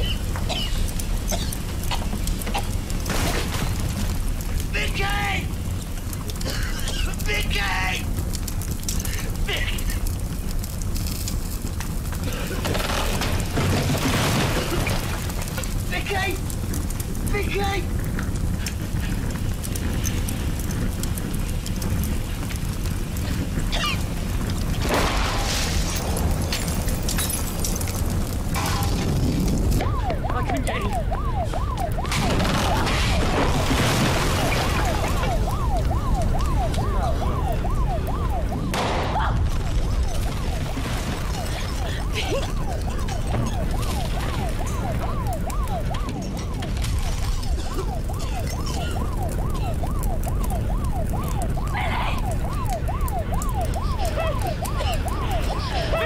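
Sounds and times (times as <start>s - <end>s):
crackles: 0.0s - 56.0s
fire burning with low rumble: 0.0s - 56.0s
emergency vehicle siren: 7.1s - 56.0s
explosion: 12.2s - 15.9s, 17.9s - 30.2s, 31.9s - 49.6s.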